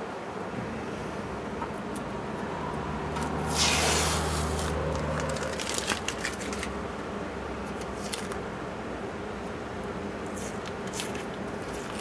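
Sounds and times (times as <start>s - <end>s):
tape tearing and crinkling: 3.2s - 6.8s, 7.6s - 8.4s, 10.3s - 12.0s.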